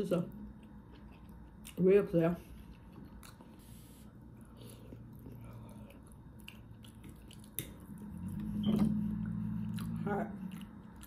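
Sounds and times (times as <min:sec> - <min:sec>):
person chewing food: 0:00.4 - 0:11.0.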